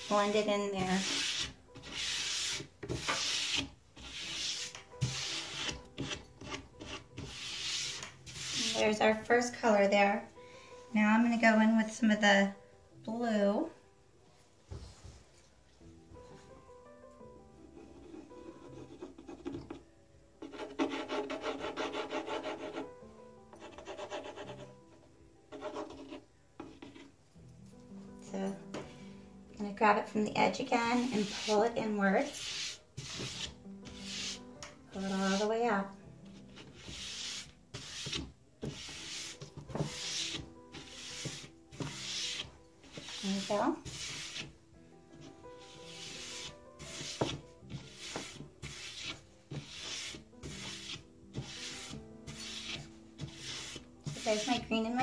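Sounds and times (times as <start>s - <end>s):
palm rubbing wet wood: 31.0s - 31.6s, 32.4s - 34.4s.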